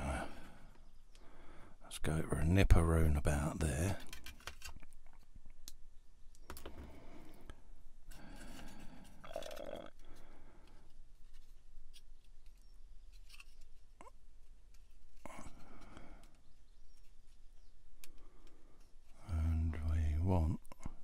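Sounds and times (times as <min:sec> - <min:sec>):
plastic parts clicking and rustling: 0:03.8 - 0:05.8, 0:10.6 - 0:19.2.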